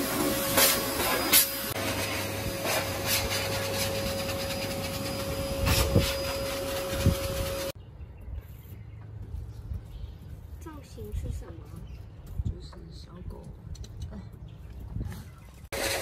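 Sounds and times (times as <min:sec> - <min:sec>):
pet dryer rushing hiss: 0:00.0 - 0:07.8, 0:15.8 - 0:16.0.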